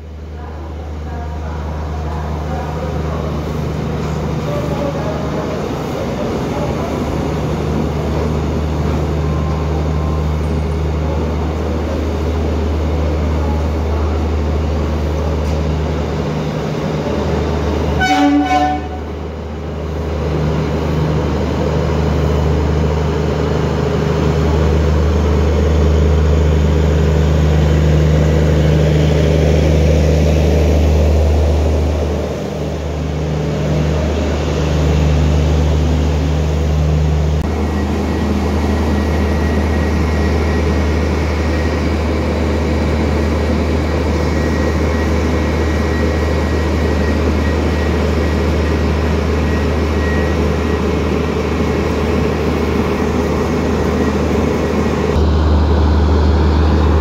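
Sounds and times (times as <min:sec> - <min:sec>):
train wheels rumbling on rails: 0:00.0 - 0:57.0
train horn blast: 0:18.0 - 0:19.1.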